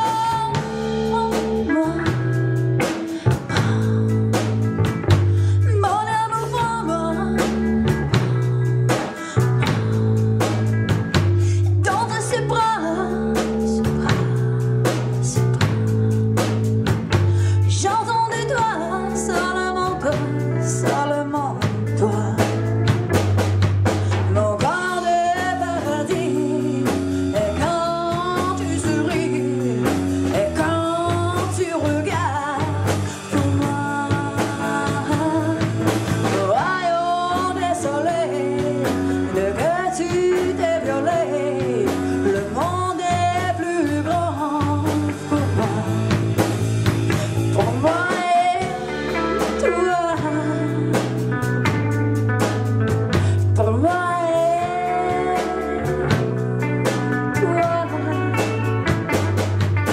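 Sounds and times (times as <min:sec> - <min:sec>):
drum kit with crashing cymbals: 0:00.0 - 0:05.8, 0:20.2 - 0:36.8, 0:41.6 - 0:53.6, 0:54.4 - 0:59.9
person singing: 0:00.0 - 0:23.1, 0:23.9 - 0:52.0, 0:52.9 - 0:59.9
electric guitar: 0:00.0 - 0:59.9
sustained bass line: 0:00.0 - 0:59.9.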